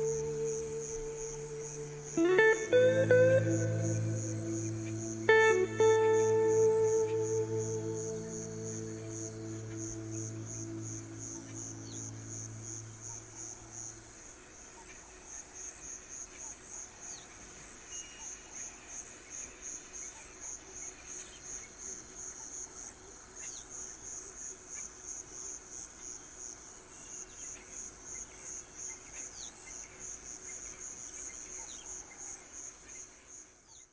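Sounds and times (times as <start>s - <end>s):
high insect buzz: 0.0s - 14.0s
insect trill pulsing: 0.0s - 14.1s.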